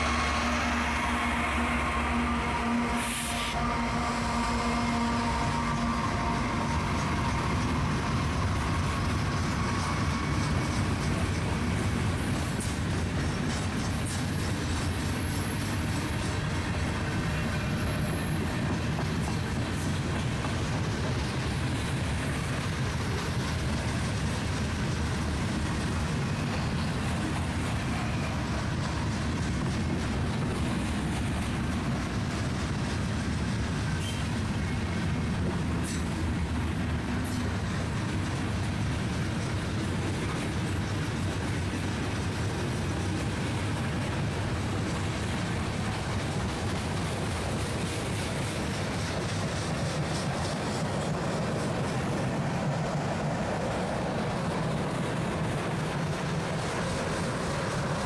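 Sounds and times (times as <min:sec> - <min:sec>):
locomotive engines rumbling: 0:00.0 - 0:58.0
train wheels clicking over rails: 0:04.9 - 0:58.0.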